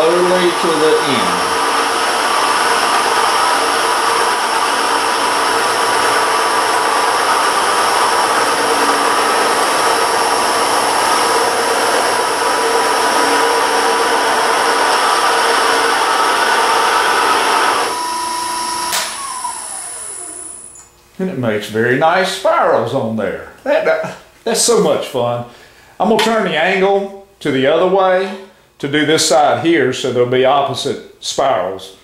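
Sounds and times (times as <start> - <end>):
cutter wheel cutting wood: 0.0 - 20.8
lathe motor hum: 0.0 - 20.8.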